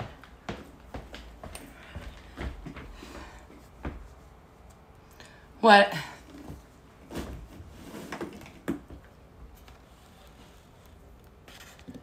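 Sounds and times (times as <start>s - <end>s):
soft handling knocks and rustles: 0.0s - 4.9s.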